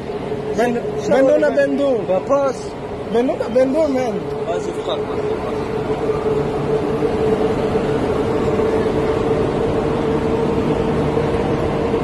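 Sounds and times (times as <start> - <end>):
vehicle interior hum and whine: 0.0 - 12.0.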